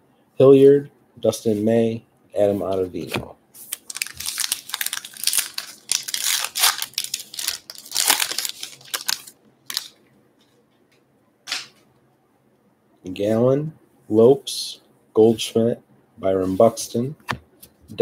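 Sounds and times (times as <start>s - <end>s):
wrapper tearing and crinkling: 3.6s - 10.0s.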